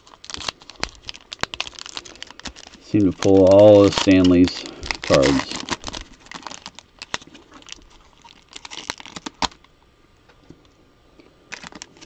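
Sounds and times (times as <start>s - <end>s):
cards rustling: 0.0s - 9.6s.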